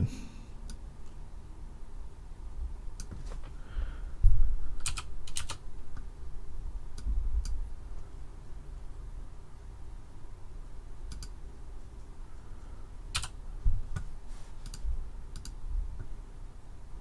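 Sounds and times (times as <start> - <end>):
faint steady low hum: 0.0 - 17.0
dull low thumps: 4.2 - 4.6
keyboard and mouse clicks: 4.8 - 6.1, 11.1 - 11.4, 13.2 - 16.1.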